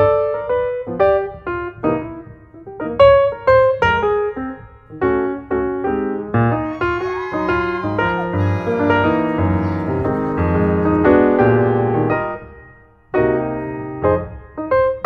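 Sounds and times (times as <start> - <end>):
piano music: 6.1 - 15.0.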